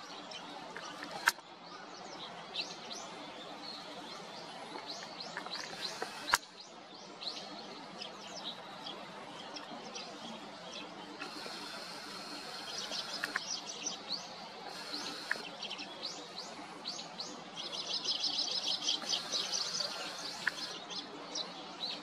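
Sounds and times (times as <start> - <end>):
sparrows chirping and chattering: 0.0 - 22.0.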